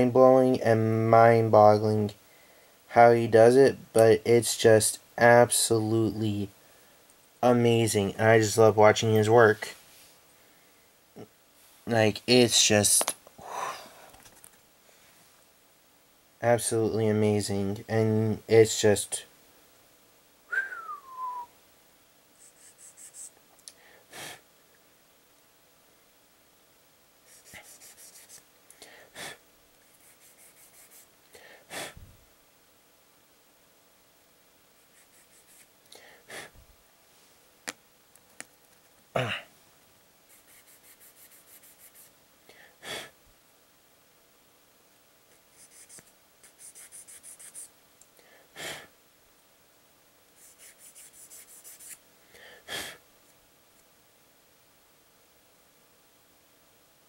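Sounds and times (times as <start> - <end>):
sharp puff of breath: 23.8 - 24.4, 31.4 - 32.1, 52.3 - 53.0.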